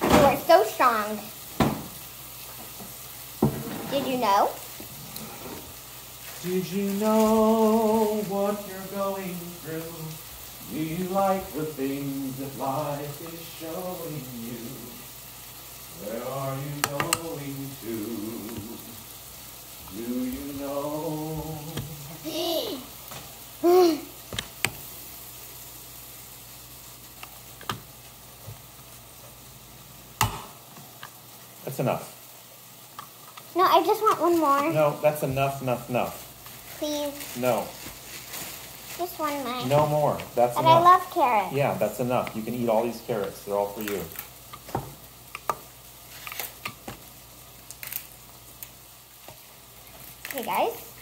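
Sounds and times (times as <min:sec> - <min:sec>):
background hiss: 0:00.0 - 0:51.0.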